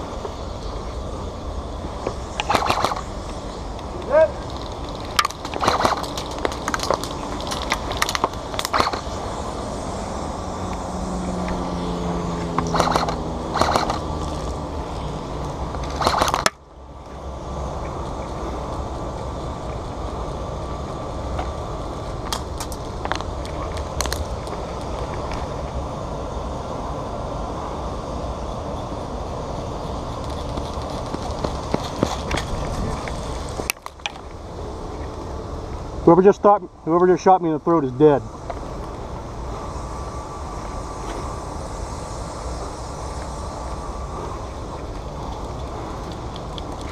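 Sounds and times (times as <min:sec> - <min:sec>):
airsoft guns firing: 0:02.4 - 0:03.0, 0:05.3 - 0:07.0, 0:08.6 - 0:09.1, 0:12.7 - 0:14.1, 0:15.9 - 0:16.5
footsteps scraping on gravel: 0:30.1 - 0:33.7.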